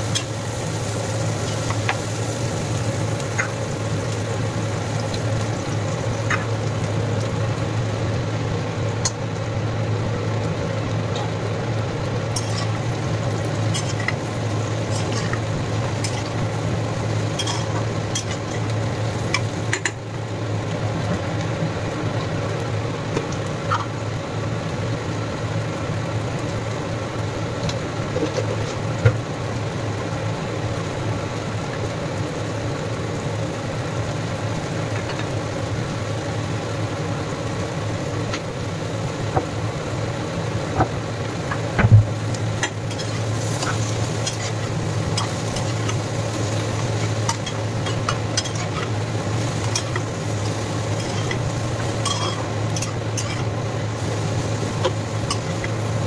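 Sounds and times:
frying sizzle: 0.0 - 56.0
metal spatula scraping a pan: 52.0 - 53.5.

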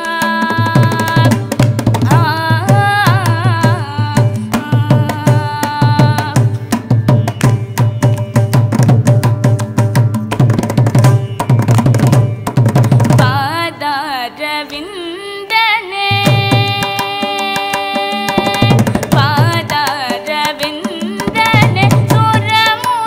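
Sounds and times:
fast hand-drum strokes: 0.1 - 13.4, 16.1 - 23.0.

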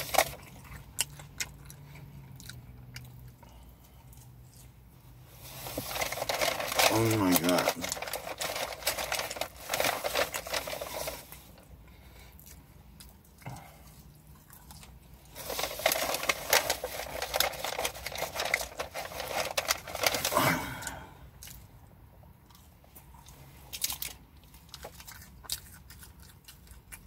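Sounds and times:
paper wrapping crinkling: 0.0 - 0.5, 5.4 - 11.6, 15.3 - 20.6.

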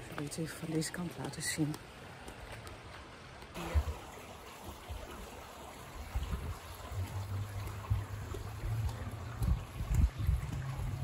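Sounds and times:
wind buffeting microphone: 6.0 - 11.0.

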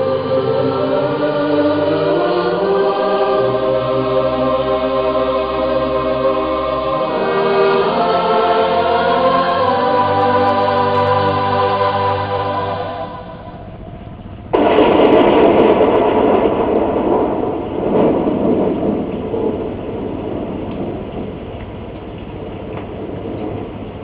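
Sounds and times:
choir holding a chord: 0.0 - 14.0
loud rushing noise: 0.0 - 21.8.

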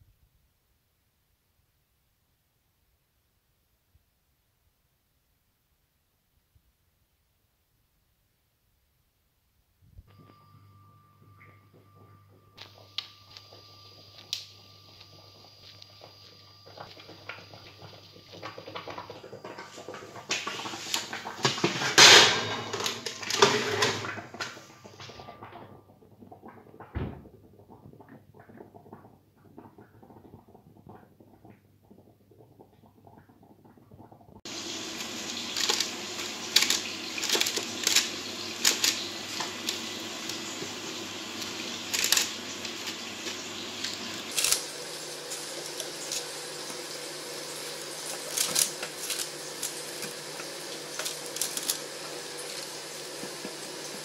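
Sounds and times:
metal tray clattering: 21.4 - 24.3
steady hiss: 34.5 - 54.0.

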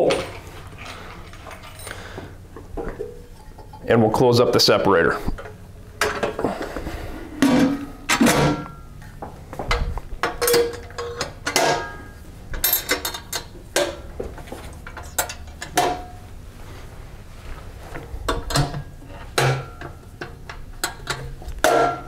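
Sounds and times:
metallic clicks and clanks: 9.7 - 12.0, 12.6 - 14.0, 19.4 - 22.0.

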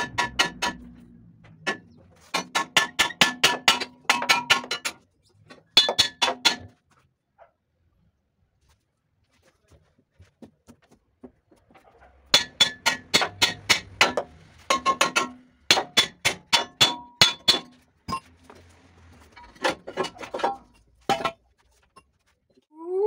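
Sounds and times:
hammer striking steel frame: 0.0 - 5.0, 5.7 - 6.8, 12.3 - 18.3.

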